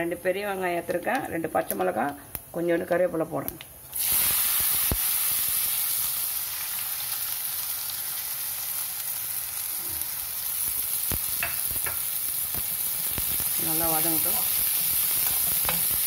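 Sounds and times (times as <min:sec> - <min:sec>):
food sizzling in hot oil: 0:03.8 - 0:16.0.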